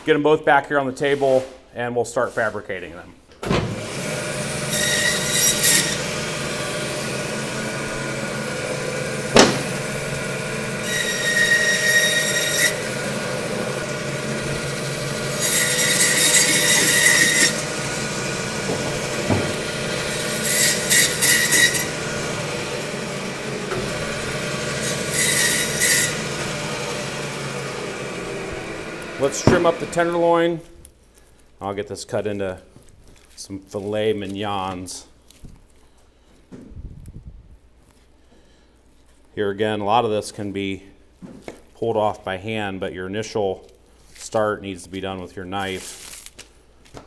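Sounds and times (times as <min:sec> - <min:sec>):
bandsaw humming: 0:03.4 - 0:30.6
saw blade squealing through bone: 0:15.4 - 0:17.7.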